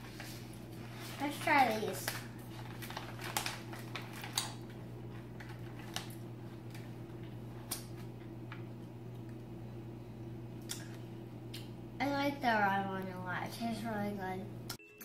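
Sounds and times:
steady low hum: 0:00.0 - 0:14.8
plastic pouch crinkling: 0:00.1 - 0:06.9.

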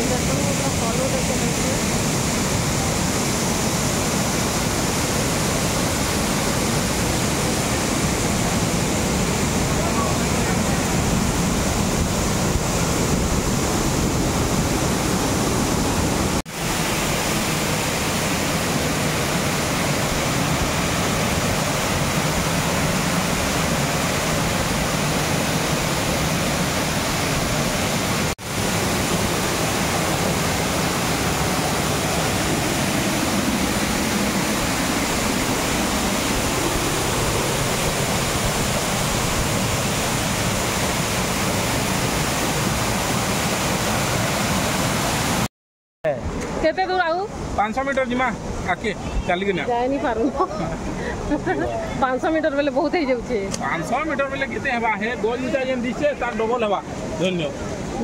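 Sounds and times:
waterfall rushing: 0:00.0 - 0:45.5, 0:46.2 - 0:58.0.

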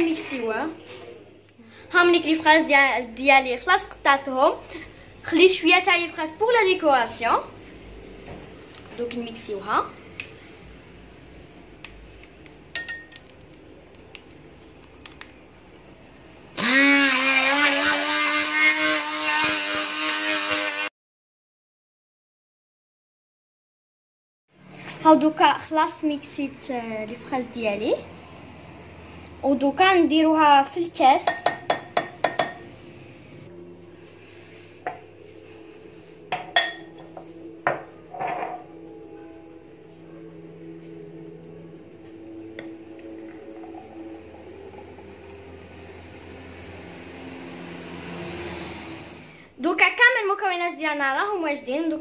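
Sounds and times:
glassware clinking on a counter: 0:12.7 - 0:13.2, 0:31.3 - 0:32.6, 0:36.3 - 0:38.7
immersion blender motor running: 0:16.6 - 0:20.9, 0:46.6 - 0:49.3.

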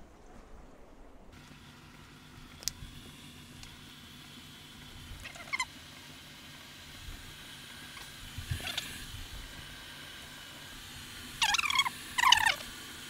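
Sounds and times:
kettle hissing: 0:01.4 - 0:13.0
crackling pops: 0:02.4 - 0:03.8.

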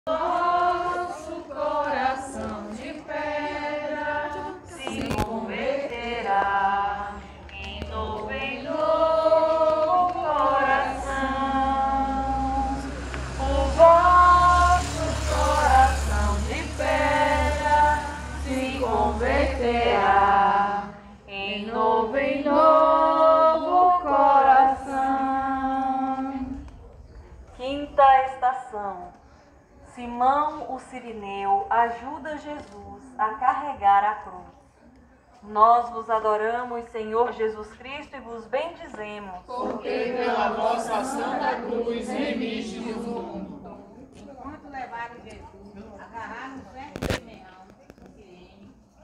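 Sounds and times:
group singing a hymn: 0:00.0 - 0:26.7, 0:39.5 - 0:44.0.

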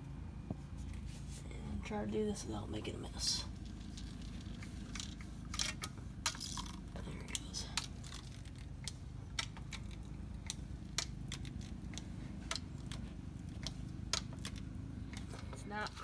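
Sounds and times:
low hum: 0:00.0 - 0:16.0
hand pump clicking: 0:04.0 - 0:16.0.

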